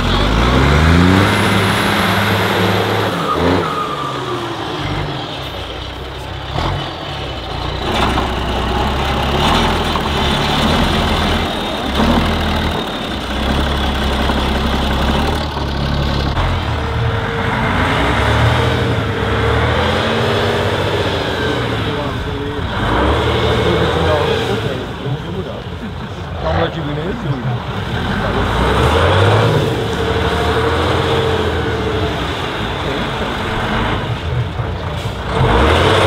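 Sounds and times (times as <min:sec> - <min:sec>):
truck diesel engine revving: 0:00.0 - 0:36.0.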